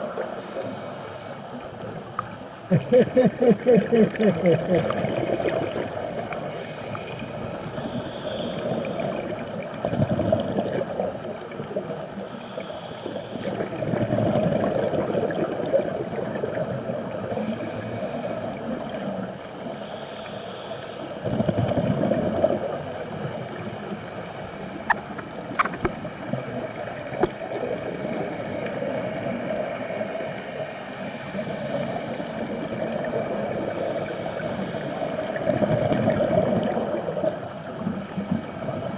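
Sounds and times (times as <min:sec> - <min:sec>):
diver breathing through regulator: 0:00.3 - 0:01.6, 0:06.4 - 0:09.4, 0:12.2 - 0:13.8, 0:17.3 - 0:21.3, 0:30.8 - 0:35.6, 0:38.0 - 0:38.9
rush of exhaled bubbles: 0:03.8 - 0:12.0, 0:13.4 - 0:19.0, 0:21.2 - 0:23.8, 0:32.4 - 0:38.9.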